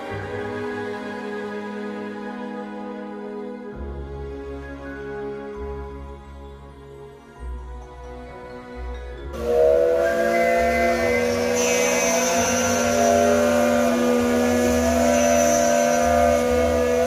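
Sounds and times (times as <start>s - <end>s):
steam locomotive whistle: 0.0s - 1.9s, 9.4s - 17.0s
steam hissing: 9.4s - 17.0s.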